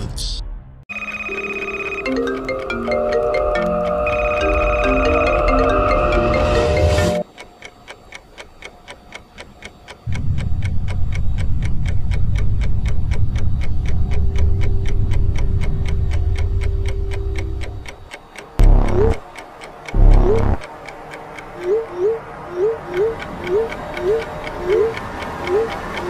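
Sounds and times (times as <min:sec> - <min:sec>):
held tone: 0:00.9 - 0:07.2, 0:18.6 - 0:19.2, 0:20.0 - 0:20.6
clock-like ticking: 0:00.9 - 0:26.0
deep low drone: 0:10.1 - 0:17.8, 0:18.6 - 0:19.2, 0:20.0 - 0:20.6.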